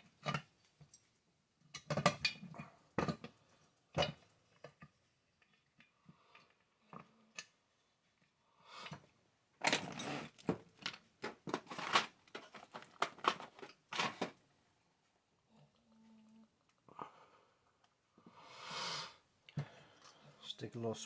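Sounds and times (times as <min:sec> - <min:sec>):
rustling and scraping: 0:09.6 - 0:14.4.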